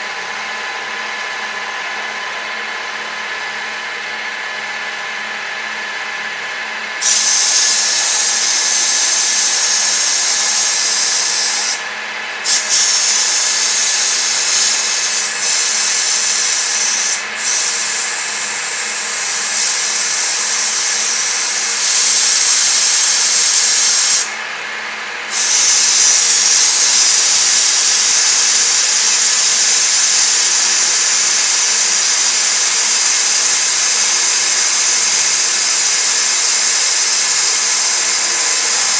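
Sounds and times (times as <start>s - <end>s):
milling machine whine: 0.0s - 38.9s
compressed air hissing: 7.0s - 11.8s, 12.4s - 24.4s, 25.3s - 38.9s
end mill cutting metal: 12.5s - 24.3s.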